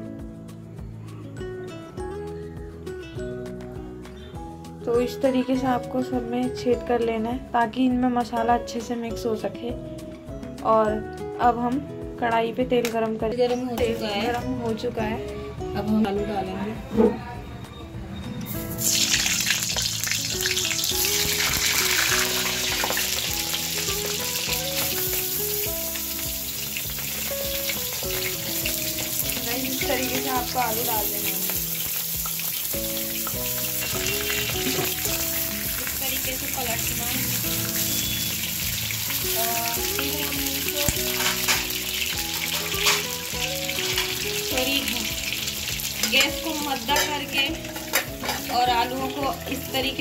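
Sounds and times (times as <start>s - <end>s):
hot oil sizzling and crackling: 18.5s - 50.0s
potatoes dropped into oil: 18.8s - 25.4s, 40.8s - 43.2s.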